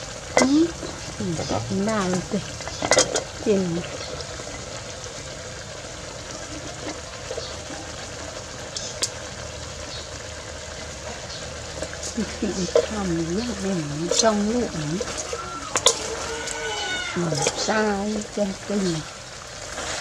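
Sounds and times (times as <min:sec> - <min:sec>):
vegetables sizzling in a pot: 0:00.0 - 0:20.0
metal clank: 0:01.2 - 0:03.3.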